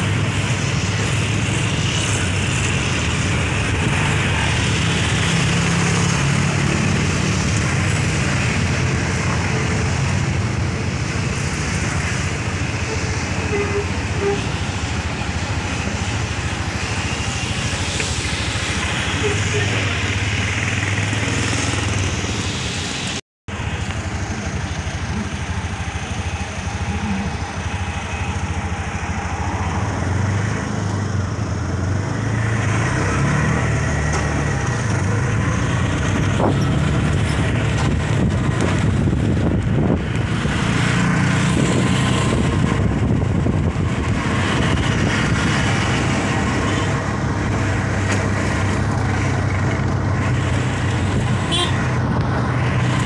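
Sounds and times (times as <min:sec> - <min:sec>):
motorcycles passing: 0:00.0 - 0:53.0
road noise: 0:00.0 - 0:53.0
vehicle engine hum: 0:00.0 - 0:53.0.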